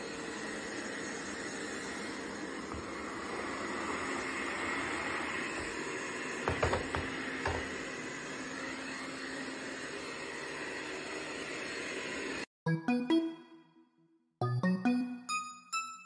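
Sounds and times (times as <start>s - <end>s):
robot vacuum cleaner whirring: 0.0s - 12.5s.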